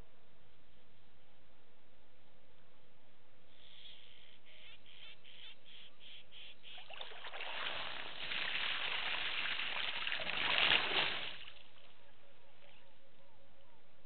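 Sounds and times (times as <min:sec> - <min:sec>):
elephant splashing water: 0:06.9 - 0:11.8.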